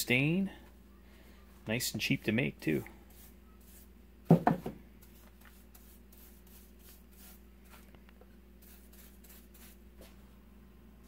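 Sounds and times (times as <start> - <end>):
paintbrush swishing: 3.1 - 4.0, 5.0 - 7.9, 8.6 - 10.2.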